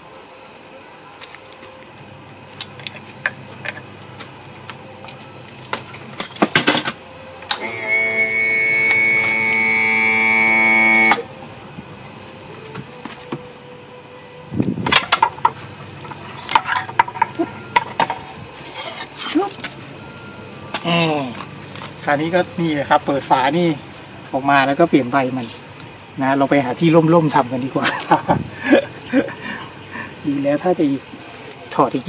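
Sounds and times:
loud steady horn-like tone: 0:07.6 - 0:11.3.

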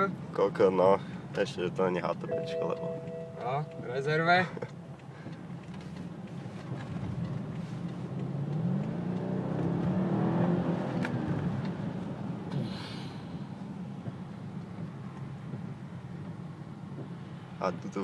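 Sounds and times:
car engine accelerating: 0:02.3 - 0:12.6.

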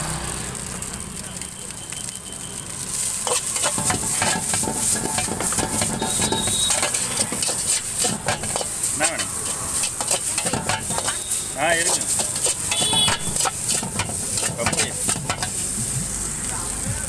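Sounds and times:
noodles sizzling: 0:00.1 - 0:17.0
utensils scraping metal wok: 0:02.9 - 0:16.0.

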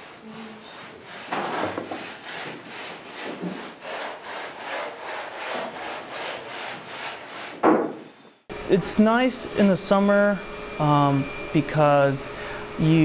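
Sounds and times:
rasping scraping strokes: 0:00.0 - 0:08.2.

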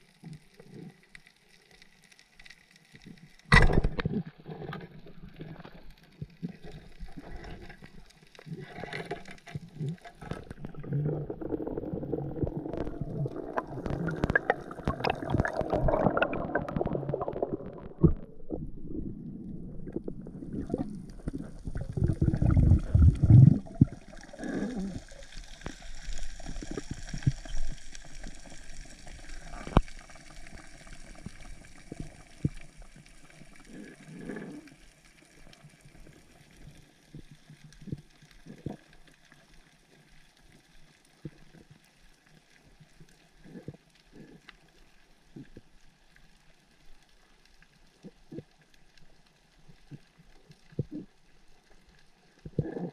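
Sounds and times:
small clicks underwater: 0:00.0 - 0:19.1, 0:19.8 - 0:52.9
underwater rushing and bubbling: 0:00.0 - 0:52.9
low gurgling surge: 0:10.4 - 0:25.7.

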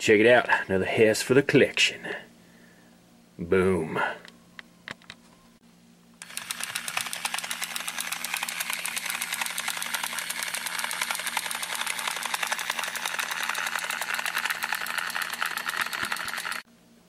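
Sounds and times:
small motor humming: 0:06.2 - 0:16.7
toy helicopter chopping sound effect: 0:06.2 - 0:16.7.

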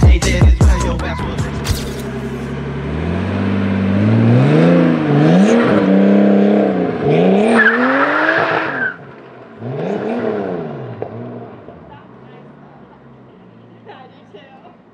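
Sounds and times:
car engine revving hard: 0:01.2 - 0:09.0, 0:09.6 - 0:12.0
tyre squeal: 0:07.5 - 0:09.0.

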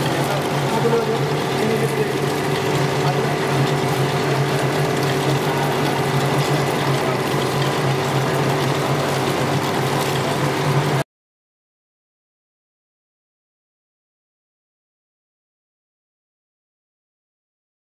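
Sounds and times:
machines whirring: 0:00.0 - 0:11.0.

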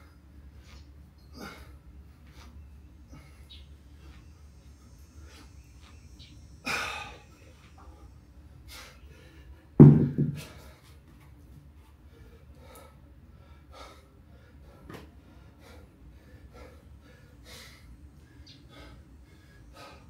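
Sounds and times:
man panting: 0:01.3 - 0:04.3, 0:06.6 - 0:09.8, 0:12.0 - 0:20.0
kettlebell thudding on concrete: 0:09.8 - 0:10.6.

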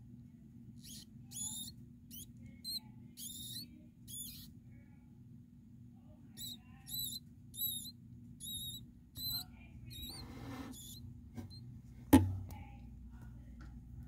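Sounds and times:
sharp knock: 0:12.1 - 0:12.4.

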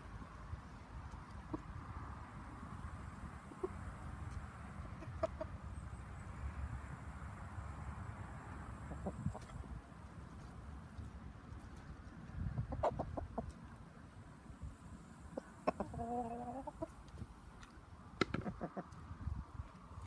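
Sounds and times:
chickens pecking: 0:00.2 - 0:02.0, 0:08.9 - 0:13.9, 0:15.3 - 0:19.0.

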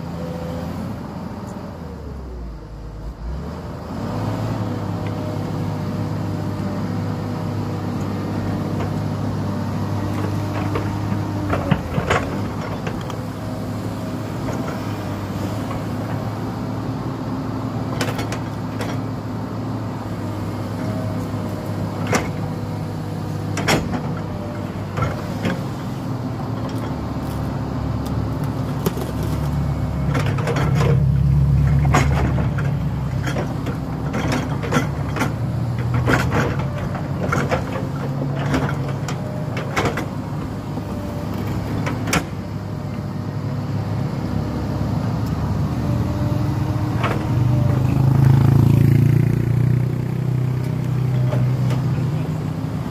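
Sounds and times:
excavator diesel engine running: 0:00.0 - 0:52.9.

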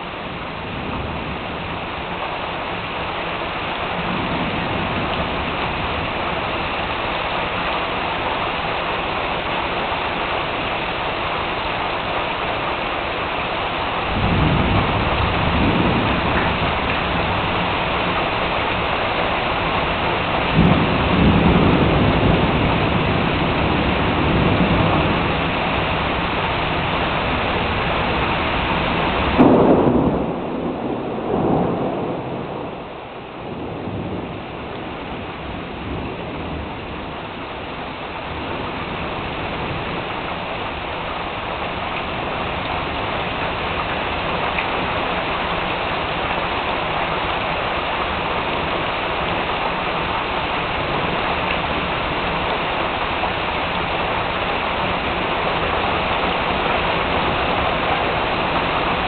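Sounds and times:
low thunder rumbling: 0:00.0 - 0:11.6, 0:13.6 - 0:59.0
heavy rain pouring: 0:00.0 - 0:59.0
loud thunderclap: 0:14.1 - 0:18.2, 0:20.5 - 0:25.5, 0:29.2 - 0:36.8.

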